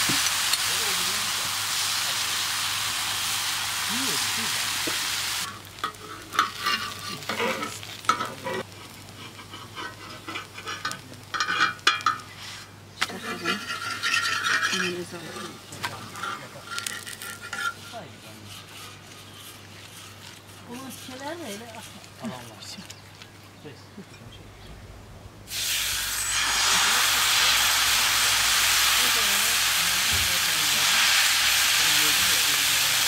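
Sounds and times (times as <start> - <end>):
batter sizzling on griddle: 0.0 - 22.2, 25.5 - 33.0
metal spatula scraping iron: 5.5 - 8.6, 9.3 - 21.6.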